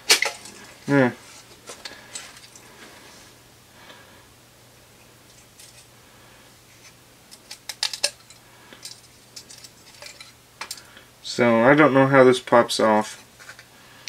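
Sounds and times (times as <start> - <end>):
clicks of plastic and metal parts: 7.3 - 8.2.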